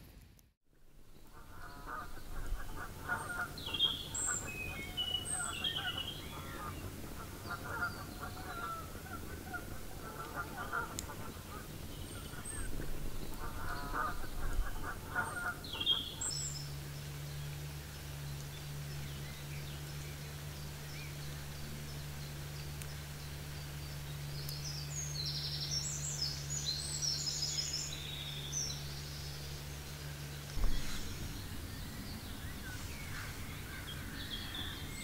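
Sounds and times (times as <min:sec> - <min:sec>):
steady low hum: 0:00.0 - 0:35.0
high chirping birdsong: 0:01.1 - 0:35.0
birds honking: 0:01.3 - 0:16.4, 0:30.6 - 0:35.0.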